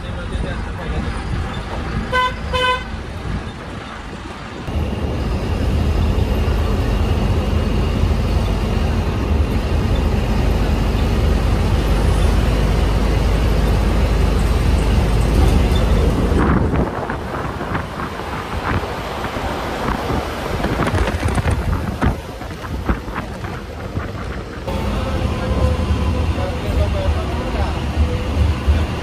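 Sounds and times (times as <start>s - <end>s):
bus engine and road rumble: 0.0s - 29.0s
vehicle horn beeps: 2.1s - 3.0s.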